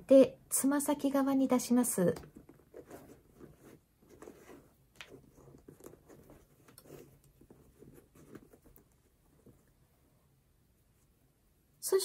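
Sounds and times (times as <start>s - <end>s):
shoelaces rustling and scraping: 2.3s - 9.8s.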